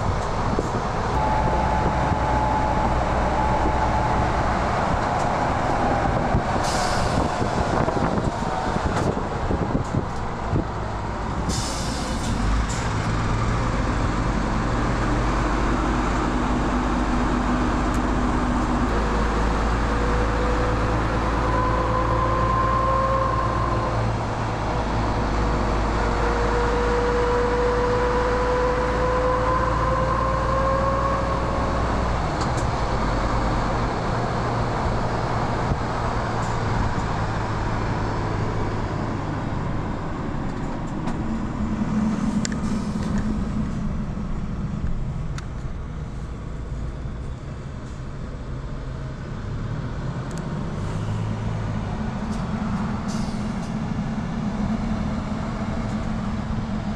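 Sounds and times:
truck diesel engine running: 0:00.0 - 0:56.9
tyre and road noise: 0:00.0 - 0:56.9
whine: 0:01.0 - 0:05.9.

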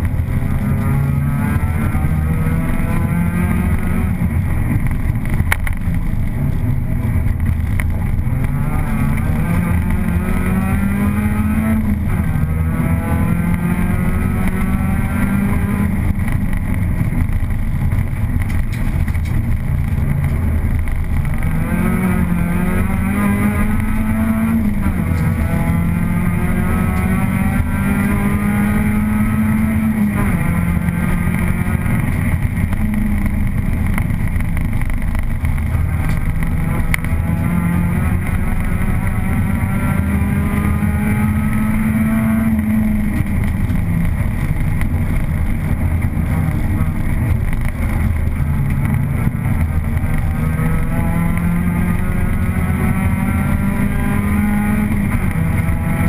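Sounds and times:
car engine revving: 0:00.0 - 0:56.0
steady rushing noise: 0:00.0 - 0:56.0.

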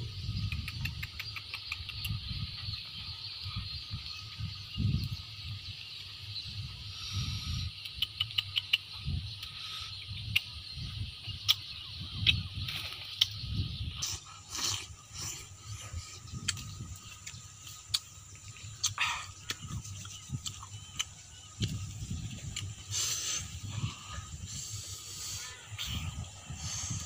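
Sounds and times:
insect drone: 0:00.0 - 0:27.0
chewing and mouth sounds: 0:07.8 - 0:09.6, 0:14.0 - 0:23.4.

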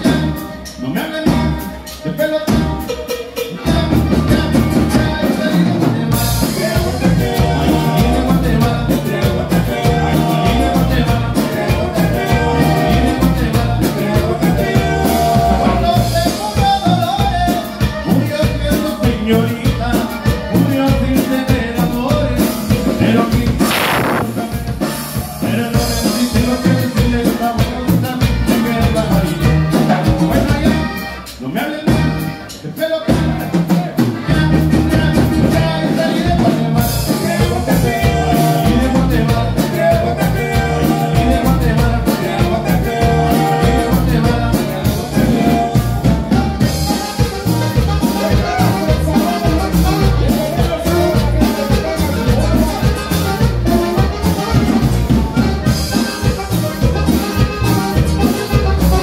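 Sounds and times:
button accordion: 0:00.0 - 0:59.0
drum kit: 0:00.0 - 0:59.0
electric bass: 0:00.0 - 0:59.0
guitar: 0:00.0 - 0:59.0
saxophone: 0:23.6 - 0:24.7, 0:42.3 - 0:59.0.

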